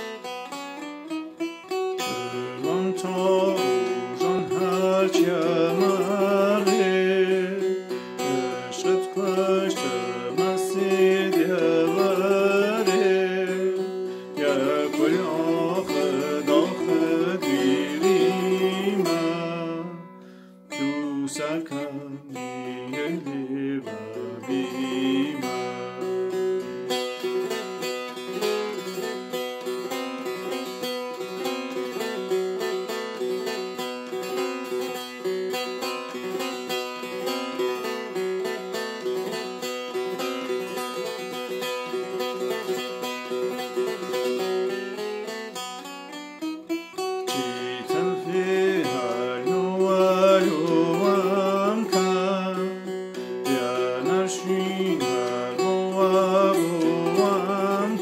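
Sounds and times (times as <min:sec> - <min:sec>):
plucked long-necked lute: 0:00.0 - 0:58.0
man singing: 0:01.9 - 0:29.0, 0:47.2 - 0:58.0.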